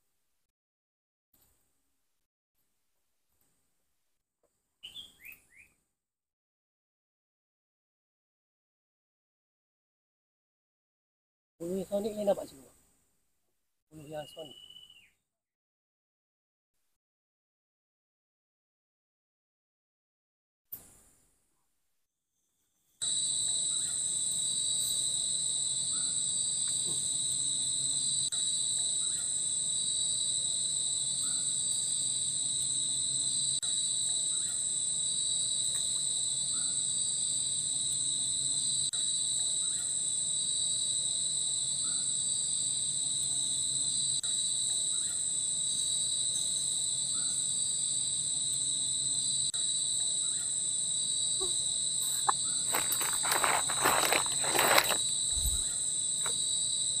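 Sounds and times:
insect chorus drone: 11.6s - 12.7s, 14.0s - 15.2s, 22.6s - 57.0s.

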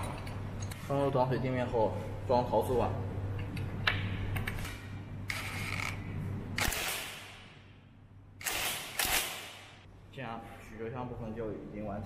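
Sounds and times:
impact wrench bursts: 6.6s - 7.4s, 8.4s - 9.8s.

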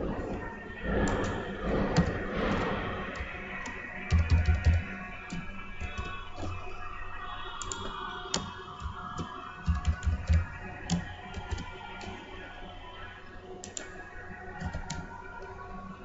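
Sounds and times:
computer keyboard typing: 0.0s - 12.5s, 13.6s - 15.5s.

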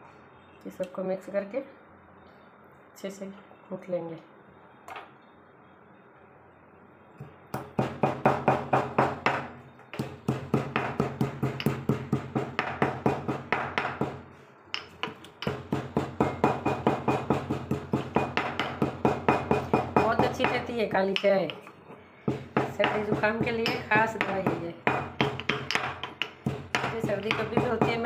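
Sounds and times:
pestle pounding in mortar: 7.6s - 21.7s, 22.3s - 28.0s.

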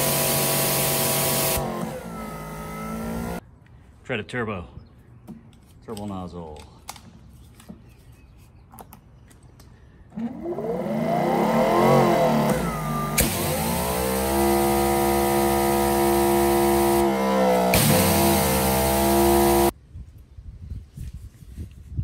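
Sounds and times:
pressure washer motor whine: 0.0s - 3.4s, 10.2s - 19.7s.

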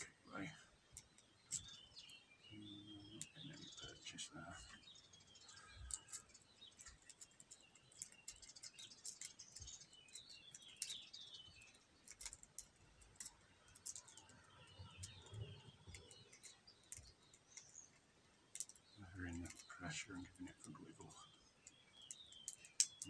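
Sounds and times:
lock pick clicks and scrapes: 5.9s - 14.4s.

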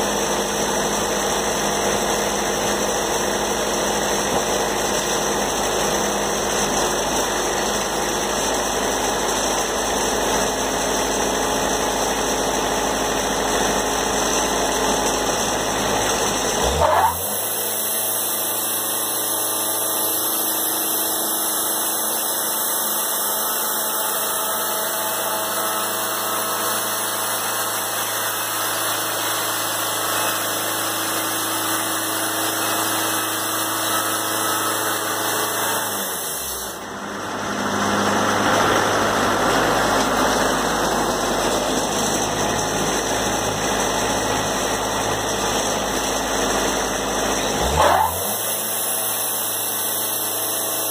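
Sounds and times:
band sawmill running: 0.0s - 50.9s
saw blade cutting board: 14.4s - 50.9s.

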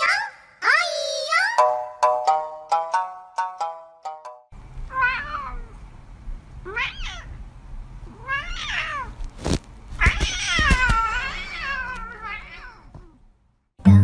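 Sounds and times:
cat meowing: 4.9s - 5.8s, 6.6s - 7.4s, 8.1s - 9.3s, 10.0s - 13.2s.

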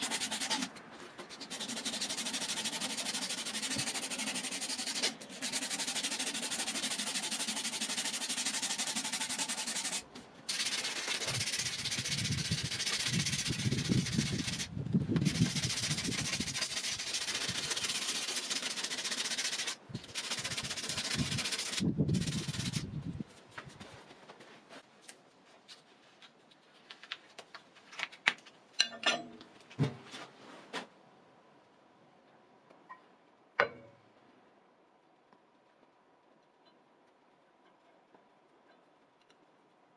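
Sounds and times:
sandpaper rubbing on wood: 0.0s - 22.9s.

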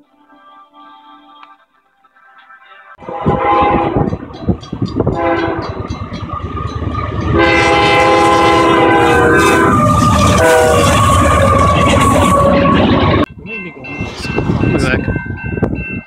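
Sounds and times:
locomotive air horn: 3.0s - 4.2s, 5.1s - 5.9s, 7.3s - 13.3s
train rumble: 3.0s - 16.0s.

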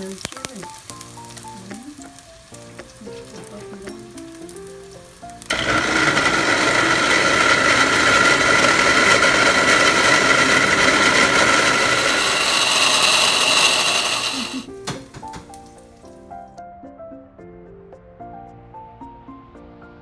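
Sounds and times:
blender whining: 5.5s - 14.7s.

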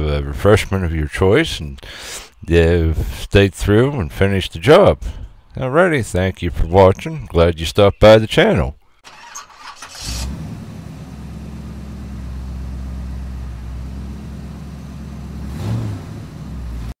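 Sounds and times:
car engine starting and idling: 9.0s - 17.0s.

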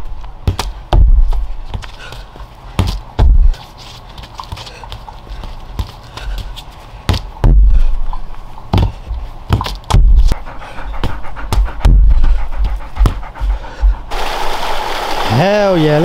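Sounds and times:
ball kicked and bouncing: 0.4s - 3.6s, 5.7s - 6.5s, 7.1s - 10.4s
loud low rumbles: 3.2s - 3.6s, 7.4s - 8.0s, 10.0s - 14.1s
dog panting: 10.3s - 14.1s.

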